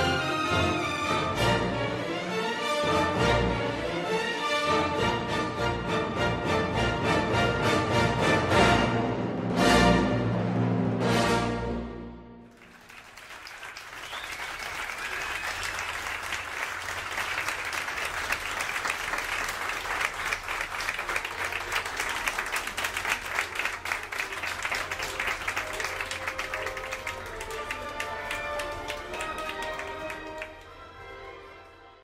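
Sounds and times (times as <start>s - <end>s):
audience clapping: 12.5s - 31.0s.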